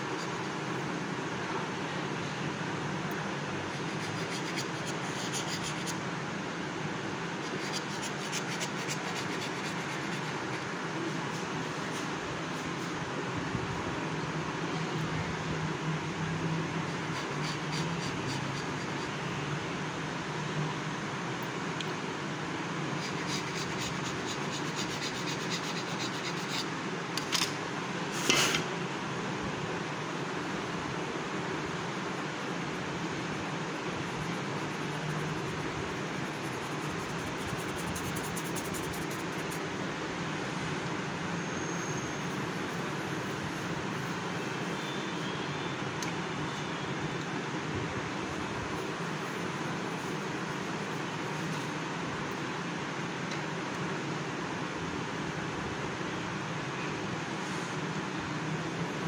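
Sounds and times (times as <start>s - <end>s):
knife scoring dough: 3.7s - 6.0s, 7.4s - 10.7s, 16.9s - 19.2s, 23.0s - 26.7s, 33.8s - 39.6s.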